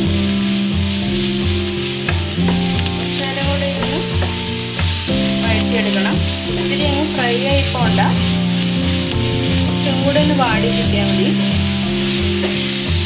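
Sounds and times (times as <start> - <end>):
background music: 0.0 - 13.0
onions sizzling in hot oil: 0.0 - 13.0
wooden spatula scraping pan: 0.0 - 13.0.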